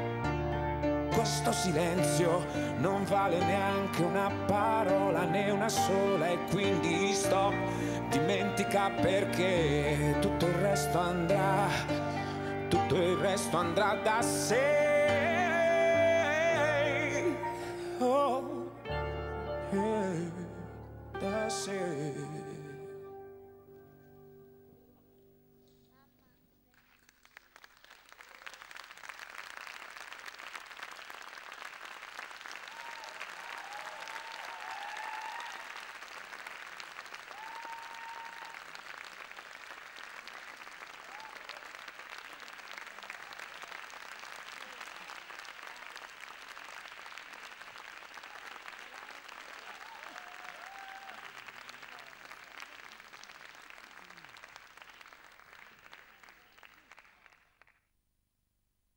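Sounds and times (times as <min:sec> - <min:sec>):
audience applauding: 0:26.6 - 0:57.8
audience cheering: 0:28.2 - 0:57.3.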